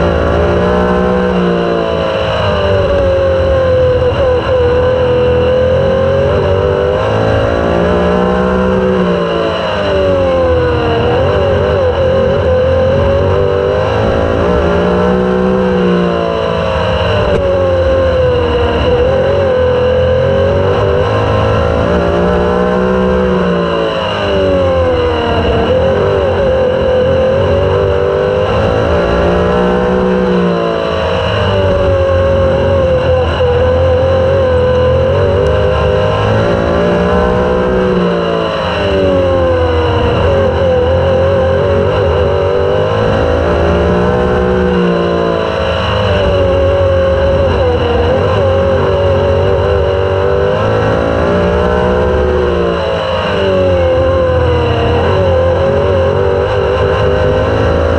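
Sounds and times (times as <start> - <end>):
race car engine at speed: 0.0 - 57.9.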